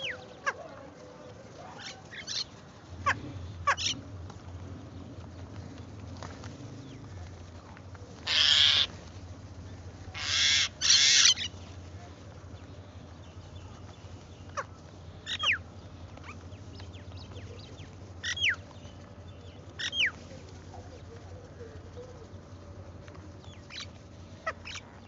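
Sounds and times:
crows cawing: 0:03.0 - 0:04.0, 0:08.2 - 0:08.9, 0:10.1 - 0:11.5.

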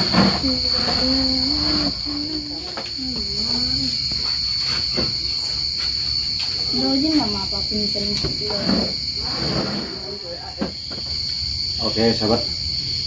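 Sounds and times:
crickets chirping: 0:00.0 - 0:13.0
person chanting: 0:00.2 - 0:03.9.

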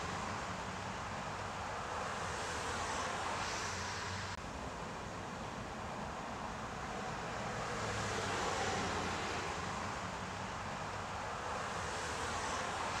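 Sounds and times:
street traffic noise: 0:00.0 - 0:13.0
car passing by: 0:01.3 - 0:04.4, 0:07.0 - 0:10.3, 0:11.2 - 0:13.0.

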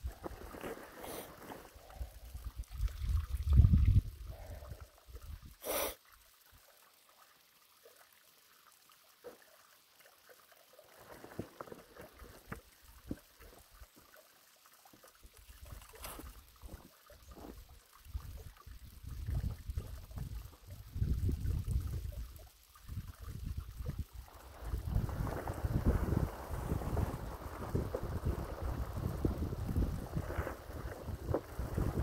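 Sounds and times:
wind buffeting microphone: 0:02.5 - 0:04.7, 0:18.2 - 0:22.3, 0:22.9 - 0:32.0.

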